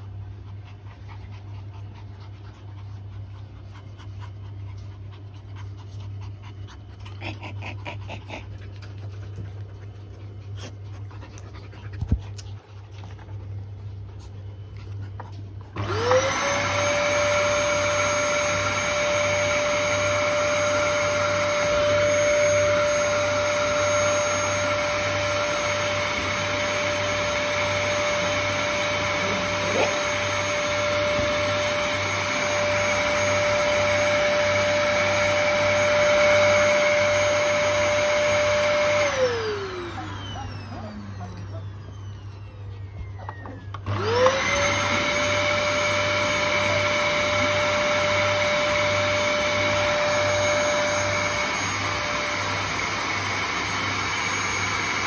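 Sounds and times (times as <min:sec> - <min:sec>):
vacuum cleaner motor whine: 0:14.9 - 0:55.0.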